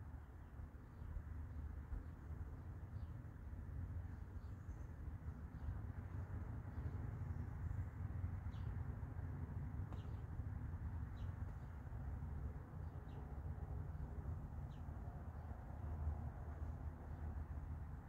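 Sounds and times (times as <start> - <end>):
low outdoor rumble: 0.0 - 18.0
bird chirping: 9.9 - 10.3.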